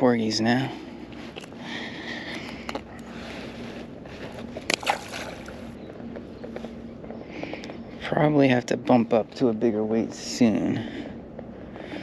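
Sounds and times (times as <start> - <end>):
faint steady hum: 0.0 - 12.0
fish splashing into water: 4.7 - 5.6.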